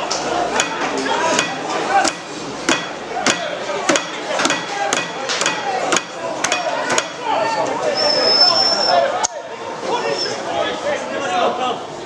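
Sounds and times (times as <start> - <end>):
sharp knocks: 0.6 - 7.3.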